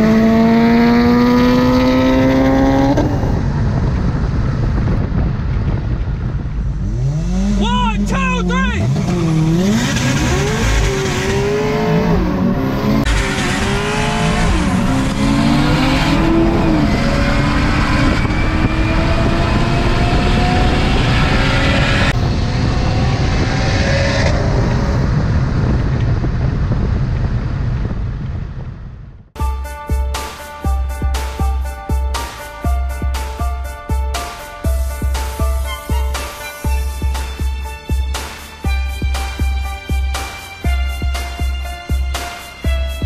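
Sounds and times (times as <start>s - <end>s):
car engine accelerating hard: 0.0s - 8.2s, 8.8s - 27.2s.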